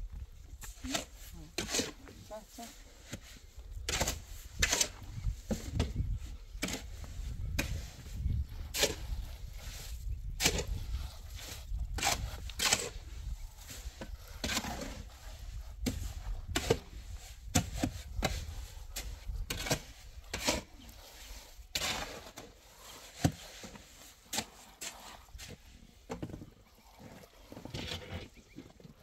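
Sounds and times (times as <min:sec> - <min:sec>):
wet plaster slapping wall: 0:10.4 - 0:13.0, 0:15.8 - 0:26.4.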